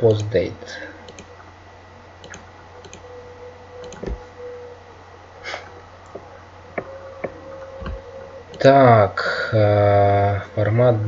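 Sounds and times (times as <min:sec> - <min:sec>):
faint electrical hum: 0:00.0 - 0:11.0
computer mouse clicks: 0:01.1 - 0:01.3, 0:02.2 - 0:03.0, 0:03.8 - 0:04.2.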